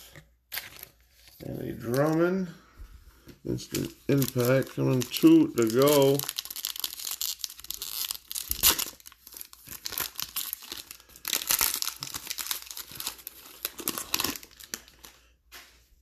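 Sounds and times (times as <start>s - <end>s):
foil wrapper tearing and crinkling: 3.5s - 15.1s.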